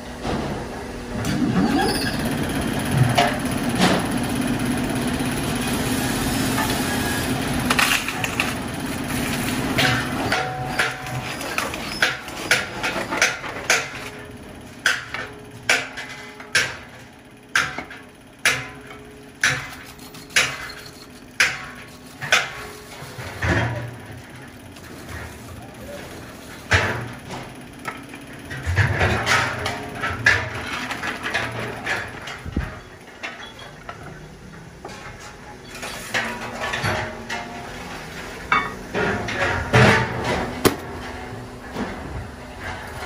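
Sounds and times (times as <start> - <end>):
metal cutting rasp: 19.6 - 23.1.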